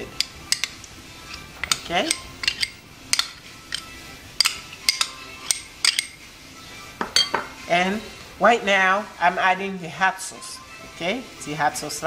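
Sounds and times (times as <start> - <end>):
metal spoon clinking glass bowl: 0.1 - 6.2, 7.0 - 7.5.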